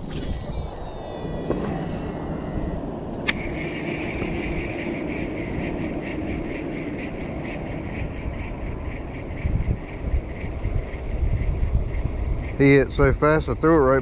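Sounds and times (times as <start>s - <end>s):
fishing reel whirring: 0.0s - 4.8s
wind rumbling on microphone: 0.0s - 14.0s.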